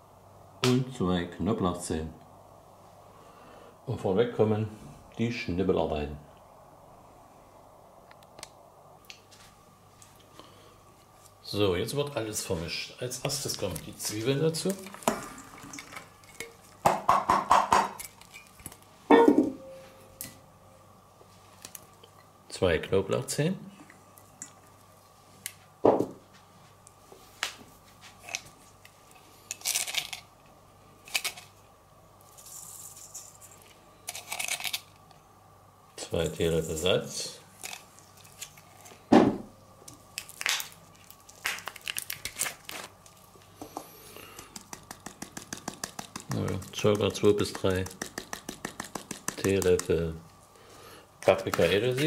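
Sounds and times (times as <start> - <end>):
packet crinkling and rustling: 13.3 - 16.8, 37.5 - 39.1, 39.9 - 43.5, 44.5 - 50.0
thump on counter: 25.8 - 26.2, 39.1 - 39.5
utensil knocking against bowl: 44.6 - 49.9.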